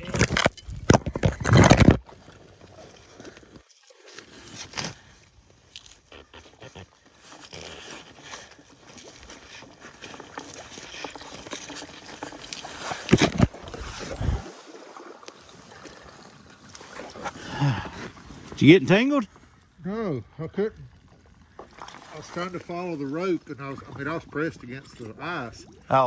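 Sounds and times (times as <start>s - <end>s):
scuba gear bumping and rubbing: 0.0s - 2.1s, 5.7s - 14.5s
water sloshing: 0.0s - 19.8s, 20.6s - 26.0s.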